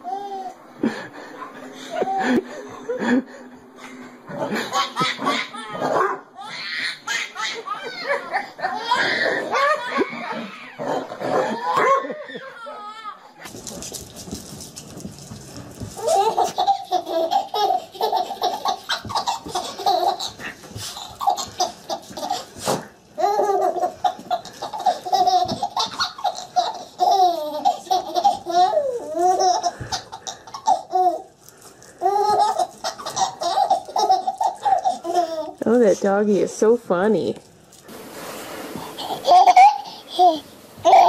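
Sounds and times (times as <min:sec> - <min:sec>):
baby giggling: 0:04.4 - 0:13.1, 0:16.0 - 0:22.5, 0:23.2 - 0:31.3, 0:32.0 - 0:35.6, 0:38.8 - 0:41.0.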